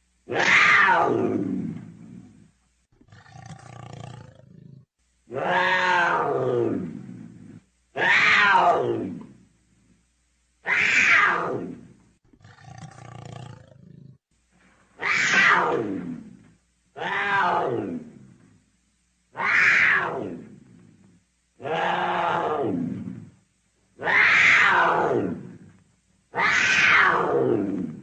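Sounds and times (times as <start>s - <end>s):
leopard calling: 10.6s - 13.1s, 15.0s - 16.4s, 24.0s - 28.0s.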